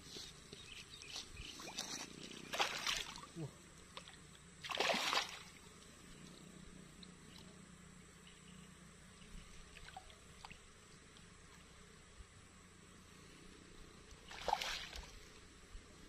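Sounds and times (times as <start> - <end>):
water splash: 2.5 - 3.2, 4.6 - 5.6, 14.3 - 15.1
faint ticks: 5.8 - 7.6, 10.4 - 11.8.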